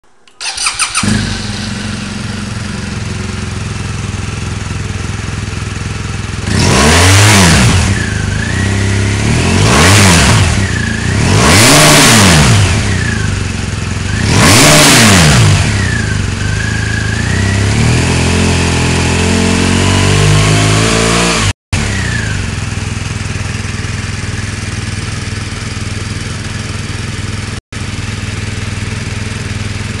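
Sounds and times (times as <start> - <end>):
motorcycle engine idling and revving: 0.4 - 30.0.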